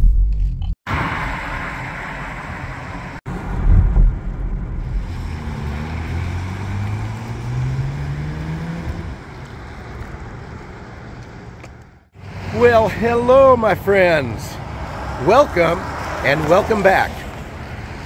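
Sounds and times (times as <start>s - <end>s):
vehicle engine accelerating: 0.9s - 12.6s.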